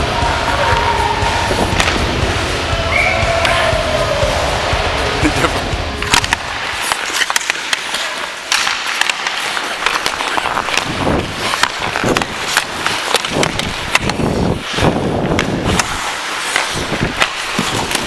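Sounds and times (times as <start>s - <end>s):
hockey sticks clacking: 0.3s - 2.2s, 2.9s - 18.0s
skate blades scraping on ice: 6.0s - 18.0s.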